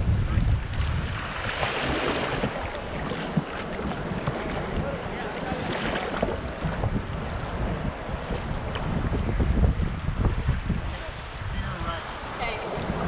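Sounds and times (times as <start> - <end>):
wind buffeting microphone: 0.0 - 13.0
rushing river rapids: 10.1 - 13.0.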